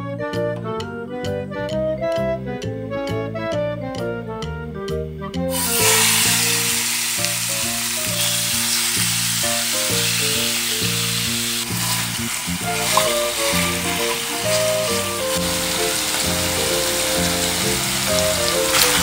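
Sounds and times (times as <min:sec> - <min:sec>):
background music: 0:00.0 - 0:19.0
chicken sizzling in hot oil: 0:05.5 - 0:19.0
wooden spoon stirring: 0:11.8 - 0:19.0.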